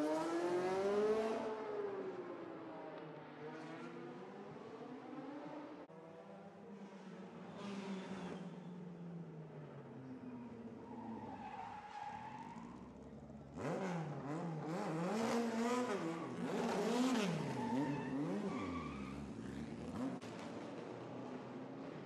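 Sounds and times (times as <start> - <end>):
tyres squealing and skidding: 10.7 - 13.0, 15.9 - 19.6.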